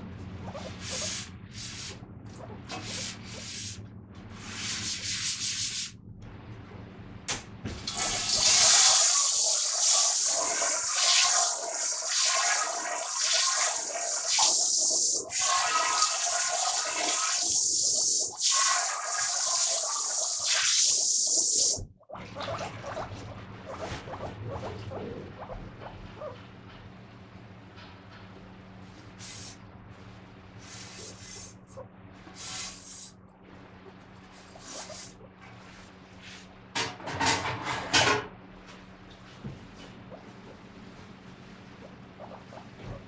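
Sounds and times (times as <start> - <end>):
dishes being scrubbed: 0.5 - 5.9
tap running water into sink: 7.7 - 20.6.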